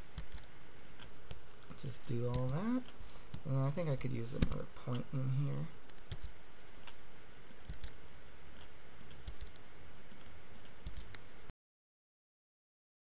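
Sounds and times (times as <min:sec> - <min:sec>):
low steady hum: 0:00.0 - 0:11.5
mouse and keyboard clicks: 0:00.2 - 0:03.5, 0:04.3 - 0:05.1, 0:05.9 - 0:11.2.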